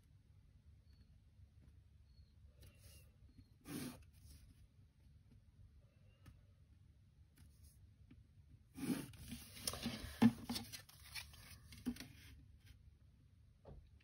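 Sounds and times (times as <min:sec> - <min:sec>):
paper rustling: 0:08.8 - 0:12.4.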